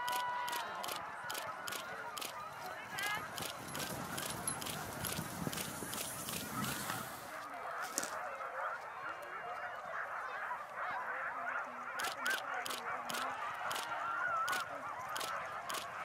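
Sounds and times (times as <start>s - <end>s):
sharp clicks: 0.0s - 2.4s, 3.0s - 6.5s, 12.0s - 16.0s.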